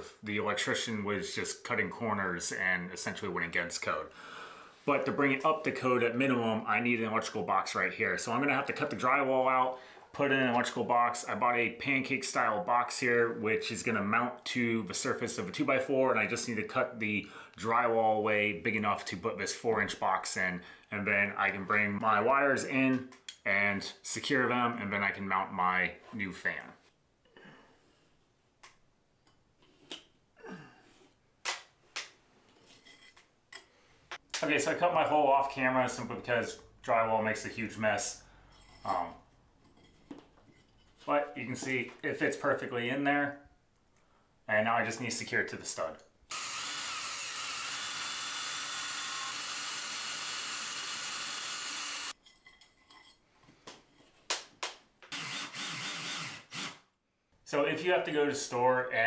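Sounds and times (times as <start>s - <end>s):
cordless drill driving a screw: 46.3s - 52.2s, 55.1s - 56.8s.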